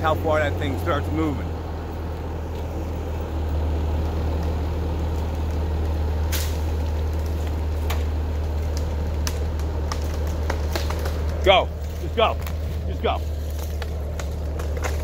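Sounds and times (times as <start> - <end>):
loader engine running: 0.0 - 15.0
sharp cracks: 4.0 - 12.7, 13.3 - 15.0.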